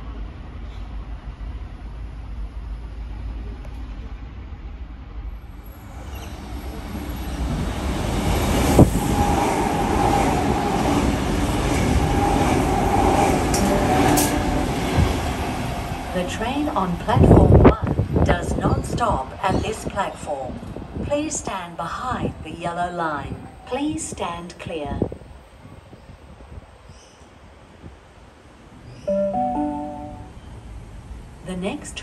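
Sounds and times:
electric train arriving: 0:05.4 - 0:19.4, 0:29.1 - 0:31.3.

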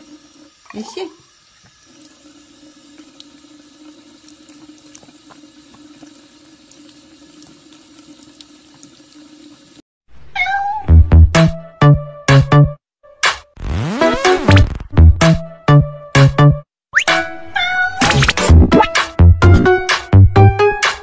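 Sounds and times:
tap running into sink: 0:04.5 - 0:06.2
electronic music with heavy beats: 0:18.0 - 0:21.0.

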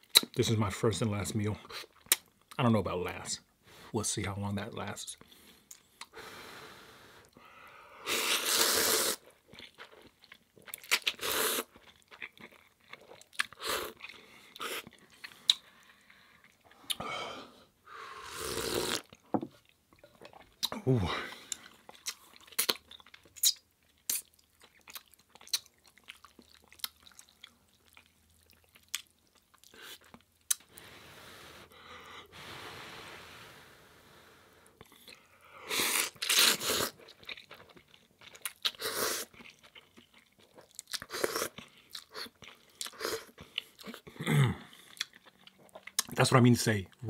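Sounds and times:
wet mouth clicks and chewing: 0:00.0 - 0:00.4, 0:01.9 - 0:02.6, 0:09.1 - 0:17.0, 0:18.6 - 0:20.8, 0:21.5 - 0:30.7, 0:35.9 - 0:46.2
soft breathy hiss: 0:05.2 - 0:09.2, 0:30.6 - 0:36.9
loud slurps of noodles: 0:08.0 - 0:09.2, 0:18.2 - 0:19.1.

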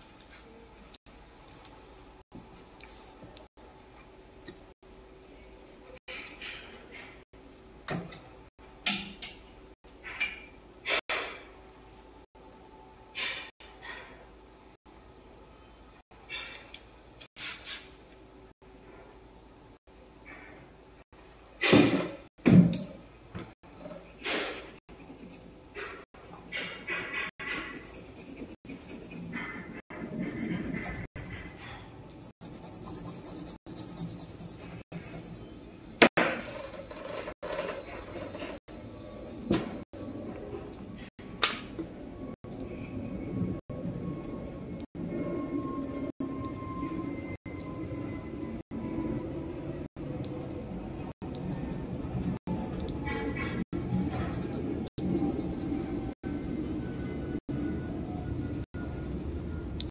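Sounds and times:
colouring strokes scratching on paper: 0:24.2 - 0:25.6, 0:26.2 - 0:35.5, 0:53.4 - 0:59.9.

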